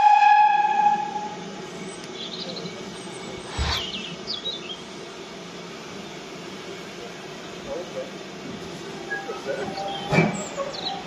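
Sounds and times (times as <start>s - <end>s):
small birds chirping: 1.9s - 4.9s
low rumble: 3.4s - 4.2s.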